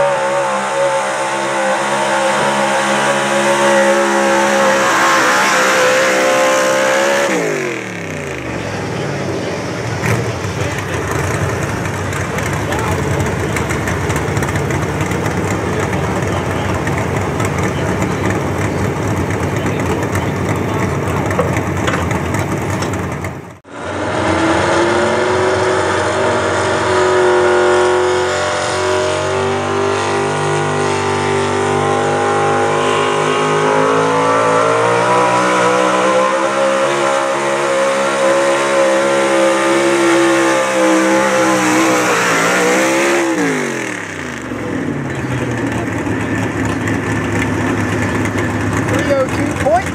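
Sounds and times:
engine at full throttle: 0.0 - 49.9.

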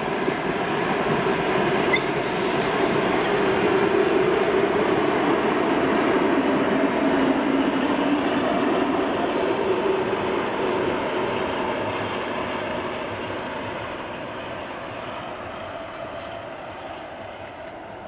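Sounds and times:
train wheels rumbling on rail: 0.0 - 18.0
high squeal: 1.9 - 3.4.

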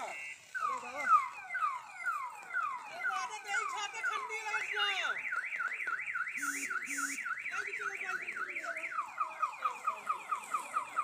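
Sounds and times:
car alarm siren: 0.0 - 11.0
short low beeps: 6.4 - 7.4.

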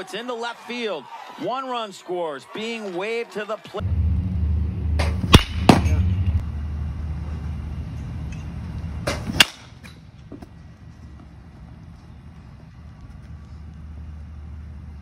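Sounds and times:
low rumble: 3.8 - 9.1
baseball bat cracking ball: 5.0 - 6.3, 9.0 - 10.6.

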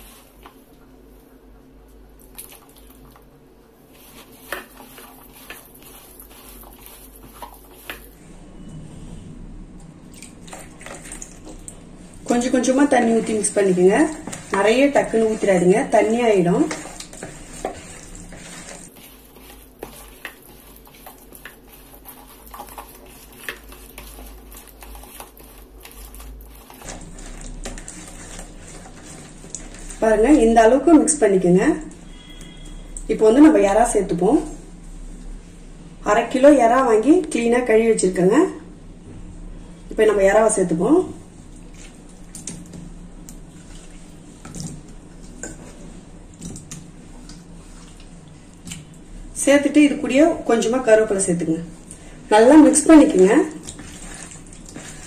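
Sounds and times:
hand squelching wet batter: 2.1 - 8.2, 10.0 - 33.7, 41.1 - 50.0, 51.7 - 55.0
fingers scraping bowl: 3.9 - 8.1, 12.2 - 30.6
hand squishing wet paste: 10.1 - 30.0.

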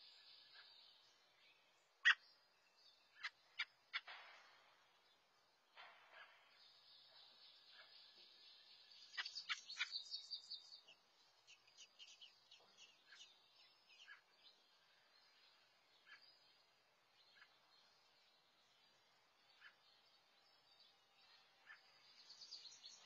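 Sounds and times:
high-pitched bird chirping: 9.0 - 14.4.

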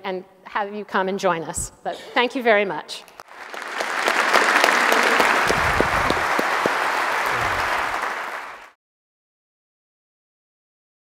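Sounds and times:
audience applauding: 3.2 - 8.8.

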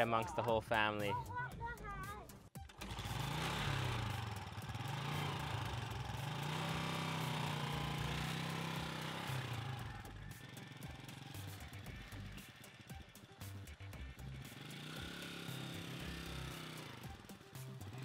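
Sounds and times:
motorcycle engine running: 2.5 - 18.0.

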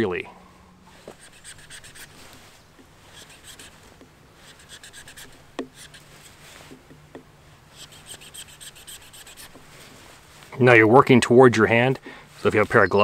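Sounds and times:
knife scraping wood: 1.0 - 10.0.

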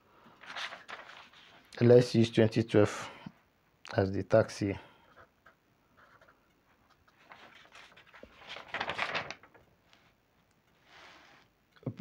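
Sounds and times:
marker pen scratching on paper: 5.1 - 7.2.

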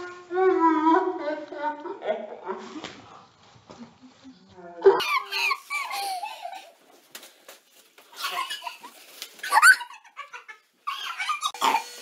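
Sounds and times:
women giggling and squealing: 8.1 - 11.6.

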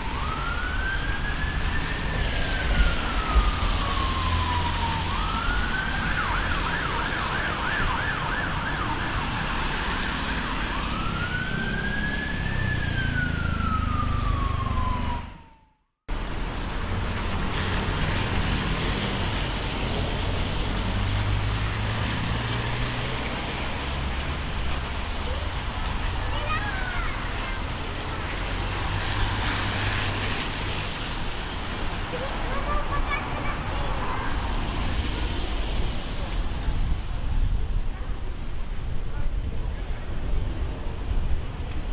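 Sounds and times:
emergency siren: 0.0 - 16.0
street noise: 0.0 - 41.9.

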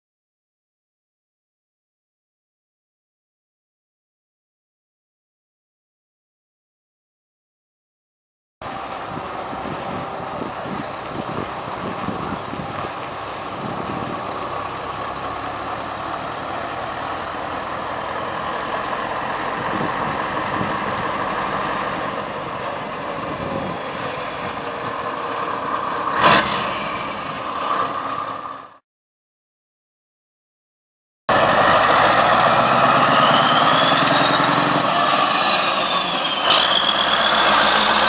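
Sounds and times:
truck diesel engine running: 8.6 - 28.8, 31.3 - 38.0
short sharp hiss burst: 26.2 - 27.7.

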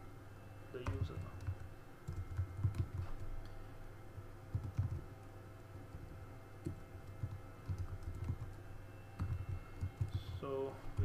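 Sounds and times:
faint steady hum: 0.0 - 11.0
keyboard keystrokes: 0.8 - 3.3, 4.5 - 5.1, 6.6 - 8.6, 9.2 - 11.0.

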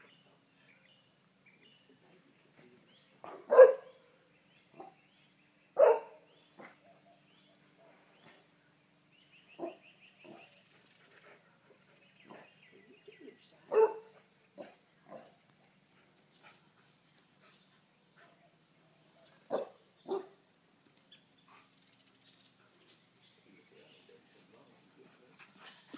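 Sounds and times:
dog barking: 3.2 - 4.0, 5.8 - 7.2, 9.6 - 10.5, 13.7 - 15.3, 19.5 - 20.4.

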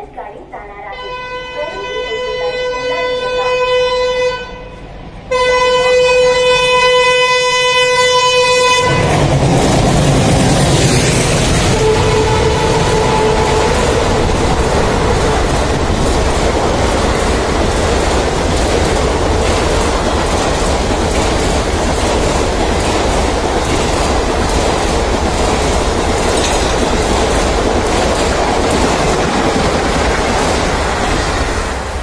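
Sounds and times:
train rushing past: 0.9 - 32.0
wheels clacking over rail joints: 9.1 - 32.0.

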